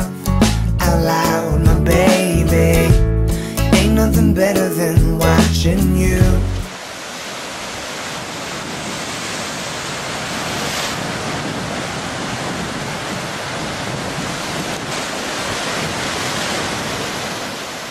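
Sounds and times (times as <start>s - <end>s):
ocean waves washing: 6.4s - 17.9s.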